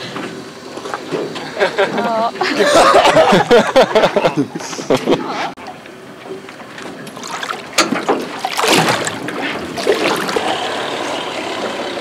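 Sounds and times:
water sloshing beside a boat: 5.1 - 12.0.

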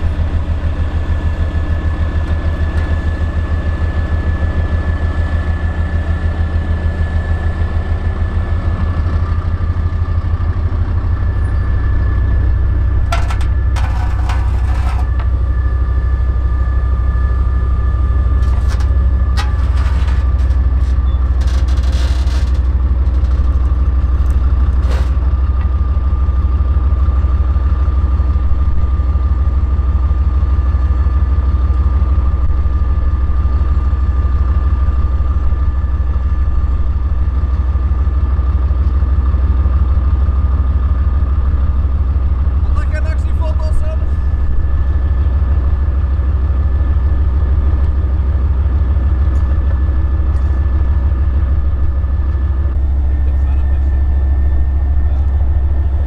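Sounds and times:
diesel engine idling: 0.0 - 56.0
faint whine: 6.2 - 56.0
short knocks and rattles: 13.1 - 15.2.

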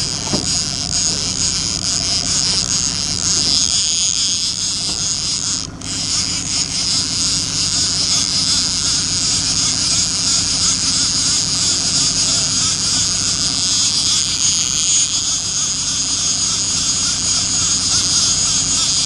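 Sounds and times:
outboard motor running: 0.0 - 19.0.

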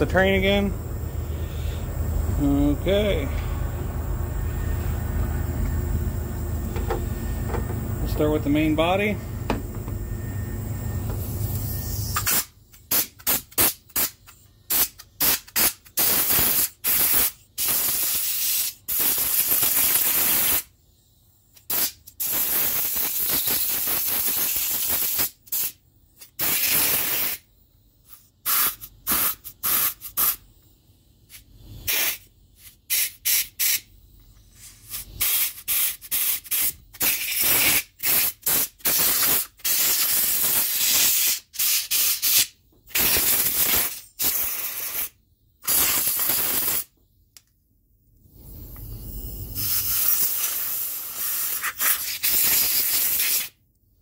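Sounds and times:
compressed air bursts hissing: 11.5 - 20.7, 21.6 - 30.5, 31.2 - 46.9, 48.2 - 53.6.

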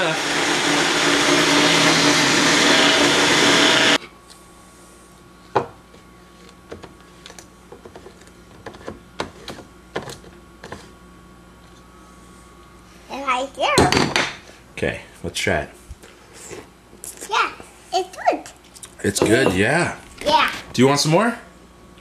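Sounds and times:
blender motor running: 0.0 - 4.0.

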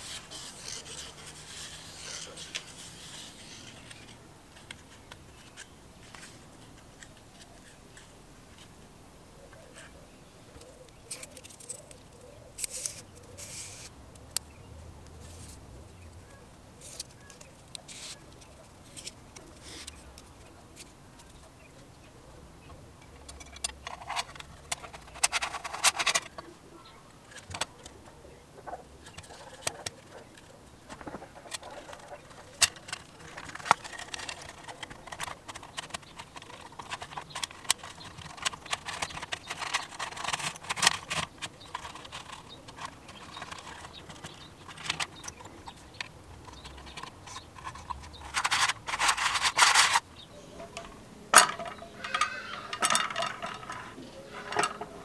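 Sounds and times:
metal parts clicking and tapping: 29.0 - 50.0, 50.7 - 55.0.

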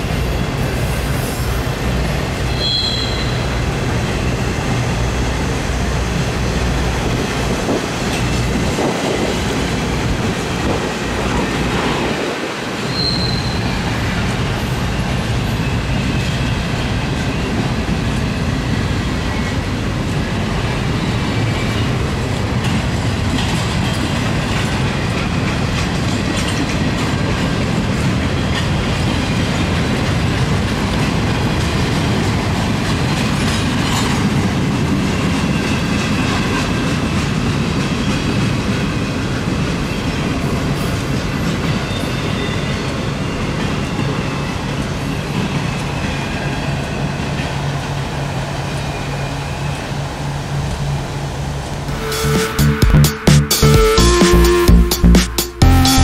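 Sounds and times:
freight train cars rolling past: 0.0 - 52.3.

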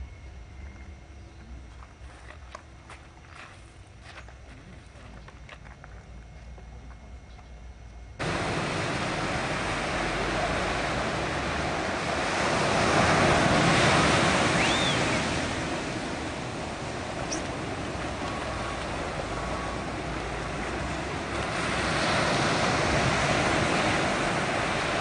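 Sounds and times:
waves breaking on beach: 8.2 - 25.0.

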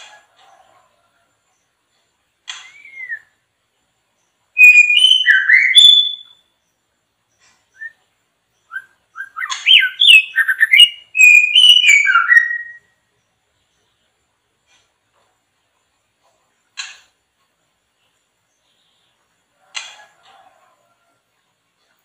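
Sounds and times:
bird whistled song: 2.5 - 3.4, 4.5 - 6.5, 7.7 - 13.0.

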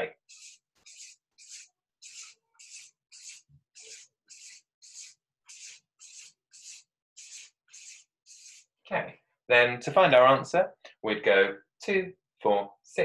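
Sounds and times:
marker pen scratching on paper: 0.2 - 8.7.

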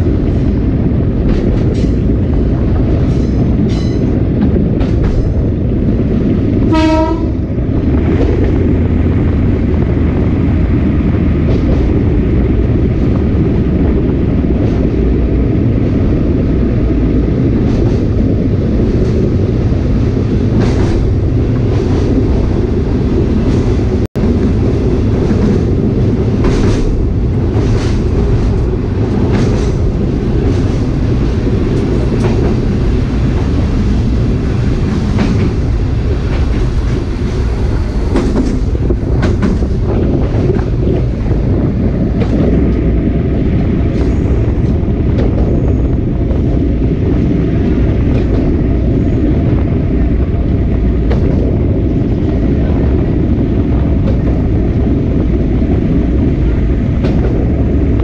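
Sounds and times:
train carriage rumbling: 0.0 - 58.0.

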